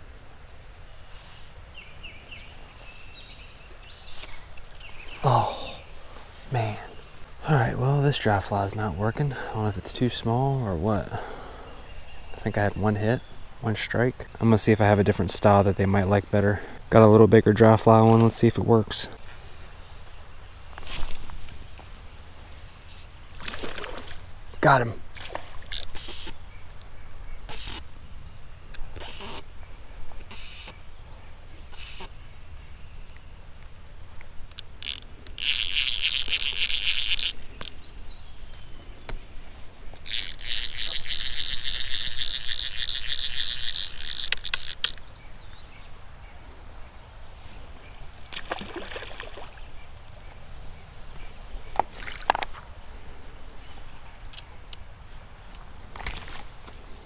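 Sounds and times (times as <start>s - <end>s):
fishing reel ratchet buzzing: 30.3s - 30.7s, 34.6s - 37.8s, 40.0s - 45.0s.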